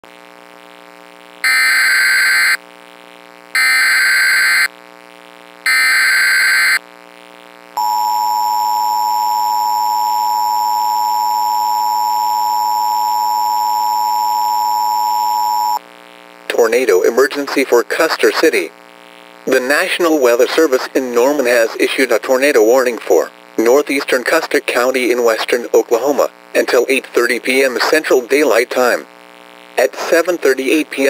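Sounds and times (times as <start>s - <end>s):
screeching data bursts: 1.5s - 2.6s, 3.6s - 4.7s, 5.7s - 6.8s
two-tone attention signal: 5.7s - 6.8s.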